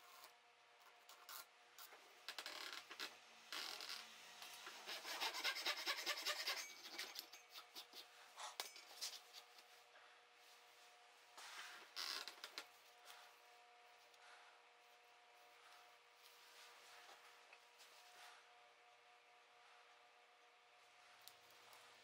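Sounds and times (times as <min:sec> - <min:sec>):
file rasping on wood: 0:04.7 - 0:08.1.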